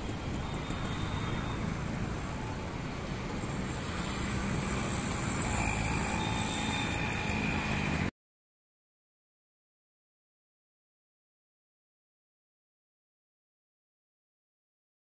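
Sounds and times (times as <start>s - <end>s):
faint high whine: 0.0s - 2.7s, 3.4s - 8.1s
road traffic rumbling: 0.0s - 8.1s.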